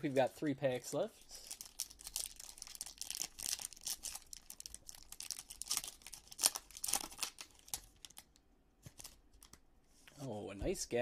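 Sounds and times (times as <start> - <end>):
foil wrapper crinkling and tearing: 1.4 - 8.4.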